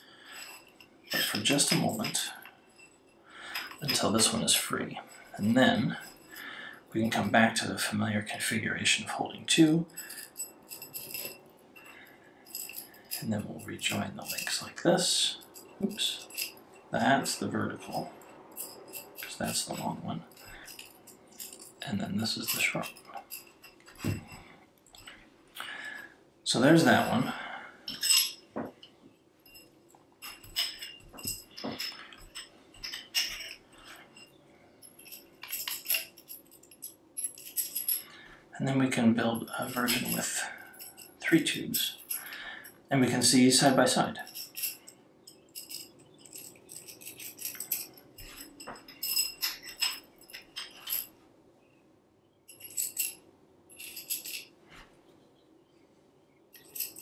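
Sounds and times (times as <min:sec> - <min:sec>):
metal clips jingling: 0:00.0 - 0:08.0, 0:09.5 - 0:38.3, 0:38.9 - 0:42.9, 0:43.6 - 0:51.2, 0:52.5 - 0:54.5, 0:56.5 - 0:57.0
metal tubes clinking: 0:00.0 - 0:51.2, 0:52.5 - 0:54.8, 0:56.5 - 0:57.0.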